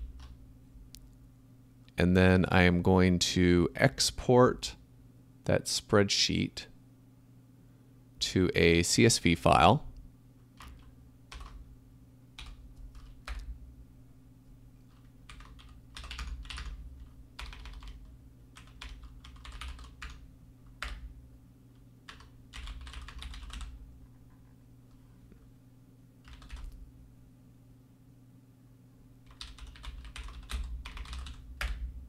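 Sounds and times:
faint low hum: 0:00.0 - 0:32.0
computer keyboard typing: 0:10.6 - 0:11.6, 0:12.4 - 0:13.5, 0:14.9 - 0:20.2, 0:20.8 - 0:21.1, 0:22.1 - 0:23.8, 0:26.2 - 0:26.8, 0:29.3 - 0:31.8.

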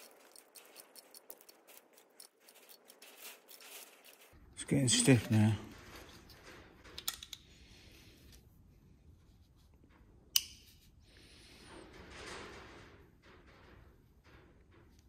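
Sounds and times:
soft rubbing: 0:00.0 - 0:05.6.

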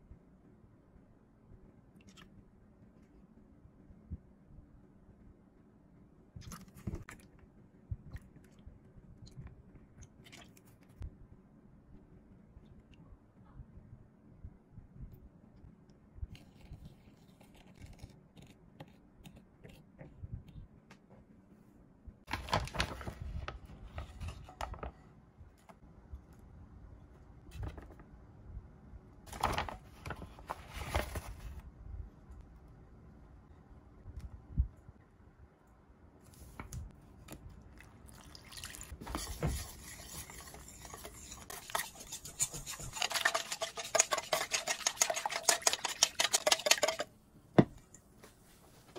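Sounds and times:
wooden spoon on ceramic bowl: 0:39.0 - 0:47.8.

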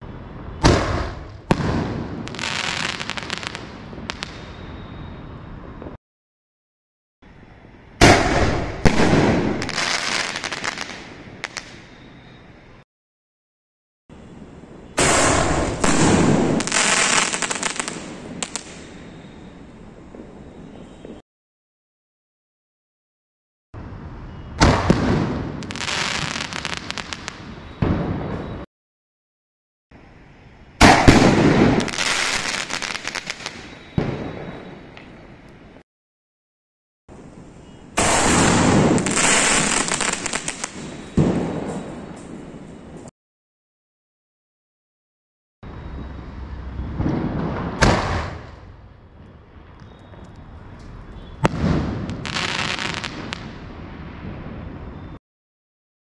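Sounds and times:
firework crackle: 0:00.6 - 0:04.6, 0:08.0 - 0:11.9, 0:15.0 - 0:19.2, 0:24.6 - 0:28.3, 0:30.8 - 0:34.6, 0:37.9 - 0:43.1, 0:50.2 - 0:54.5.

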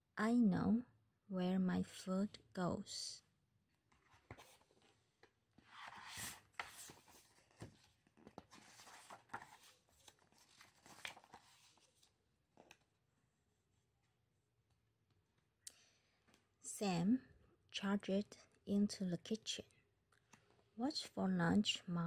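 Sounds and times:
book pages turning: 0:03.9 - 0:12.9.

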